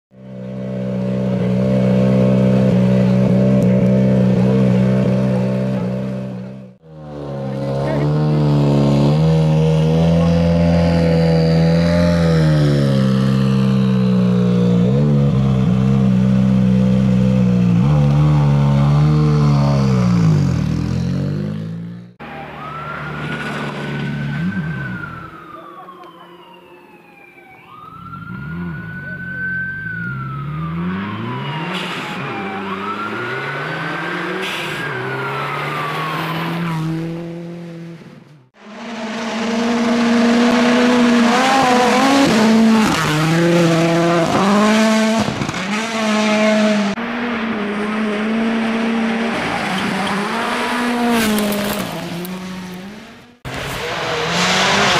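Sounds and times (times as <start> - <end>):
siren wailing: 22.2 - 37.3.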